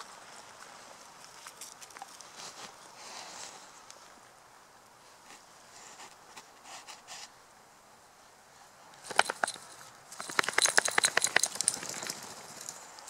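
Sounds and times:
dog shaking itself off: 9.1s - 12.8s.

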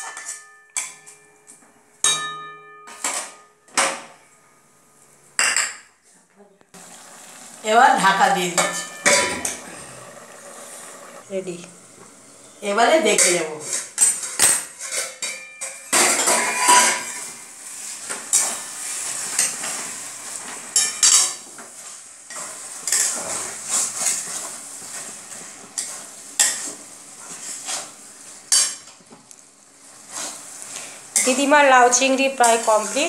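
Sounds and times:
metal spatula scraping a pan: 8.0s - 20.0s, 20.7s - 28.8s, 30.0s - 33.0s.

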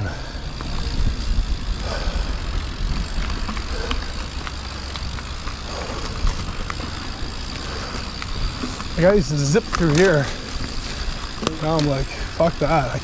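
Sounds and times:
wind rumble on microphone: 0.0s - 6.7s
bike ticks and rattles: 0.0s - 13.0s.

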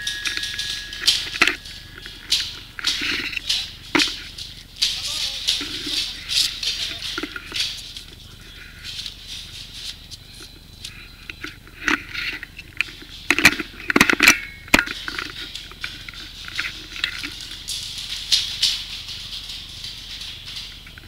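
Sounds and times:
sharp cracks: 0.0s - 10.2s
gear rattling: 0.0s - 21.0s.

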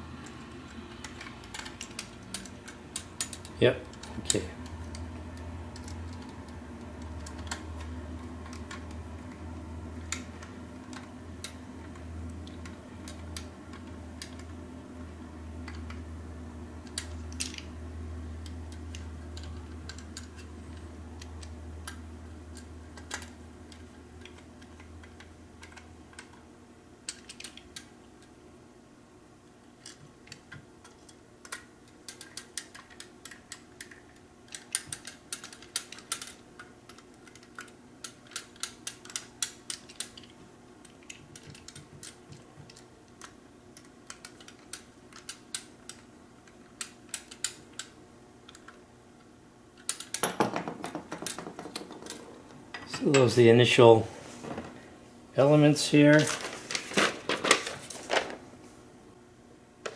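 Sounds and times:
low steady hum: 0.0s - 59.9s
small metal parts clicking: 0.2s - 7.8s, 16.8s - 17.7s, 18.4s - 26.4s, 27.0s - 28.3s, 29.8s - 48.8s, 49.8s - 53.2s.

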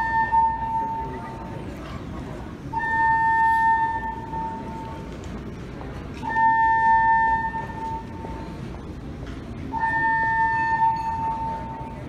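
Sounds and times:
fire alarm high tone: 0.0s - 1.4s, 2.8s - 5.0s, 6.3s - 8.6s, 9.7s - 12.0s.

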